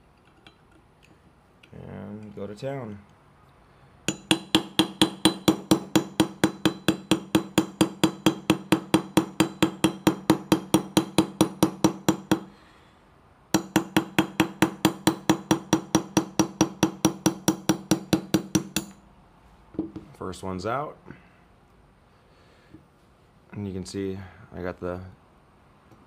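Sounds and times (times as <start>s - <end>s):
hammer tapping pin punch: 4.1s - 12.5s, 13.6s - 19.0s.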